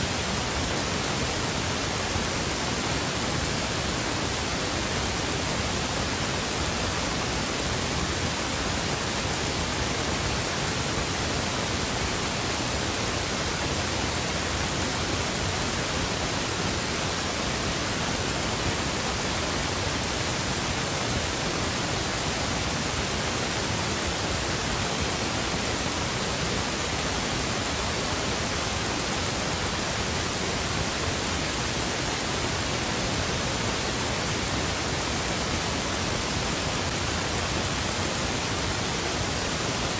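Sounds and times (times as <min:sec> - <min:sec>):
static hiss: 0:00.0 - 0:39.9.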